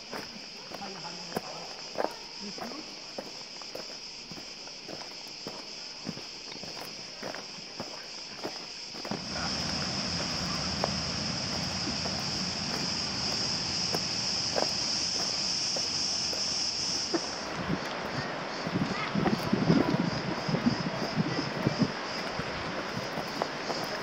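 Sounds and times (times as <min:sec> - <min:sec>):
cicadas buzzing: 0:00.0 - 0:24.0
footsteps on stone: 0:00.0 - 0:24.0
steady rushing sound: 0:09.1 - 0:24.0.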